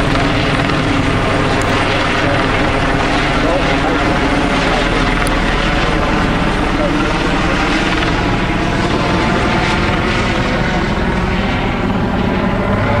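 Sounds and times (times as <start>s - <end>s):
helicopter rotor and engine: 0.0s - 13.0s.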